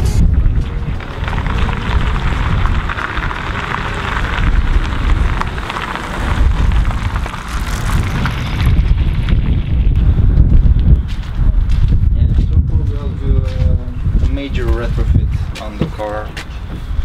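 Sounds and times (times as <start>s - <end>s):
car and trailer rolling past: 0.0s - 11.4s
wind rumble on microphone: 0.0s - 17.0s.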